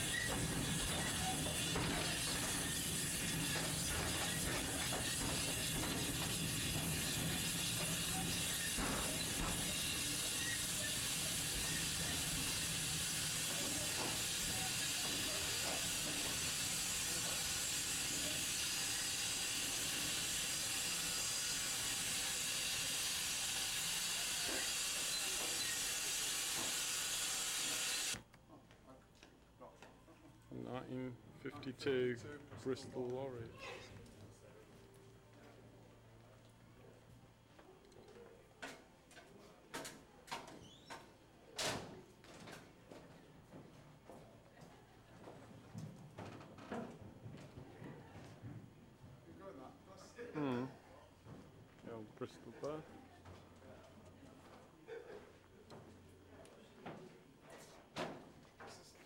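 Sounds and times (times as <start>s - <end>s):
steam locomotive hissing and running: 0.0s - 28.2s.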